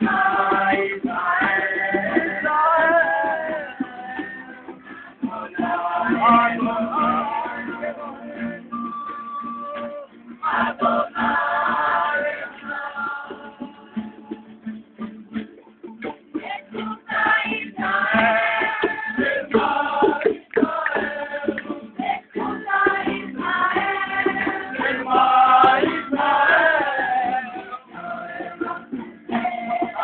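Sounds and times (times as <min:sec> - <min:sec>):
group singing: 0:00.0 - 0:14.8, 0:16.1 - 0:30.0
strummed acoustic guitars: 0:00.0 - 0:30.0.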